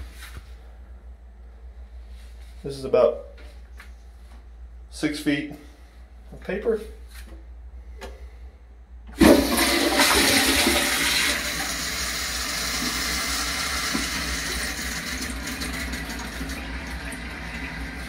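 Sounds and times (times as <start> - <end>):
toilet flushing: 9.1 - 18.0.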